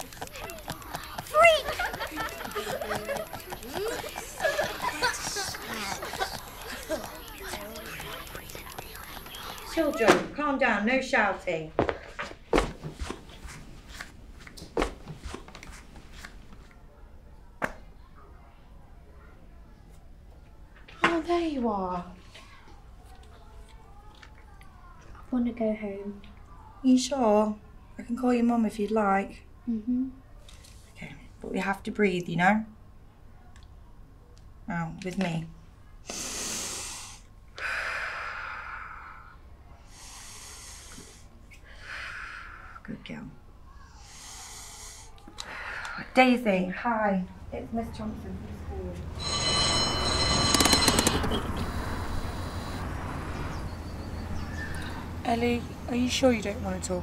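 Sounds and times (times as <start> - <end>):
sharp knocks and thuds: 11.8 - 13.2
deep breaths in and out: 36.1 - 42.9, 43.8 - 46.2, 51.5 - 53.3.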